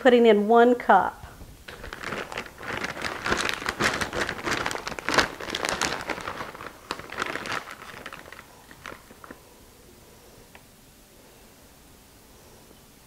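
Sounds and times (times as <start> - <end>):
plastic bag crinkling: 1.6 - 9.5.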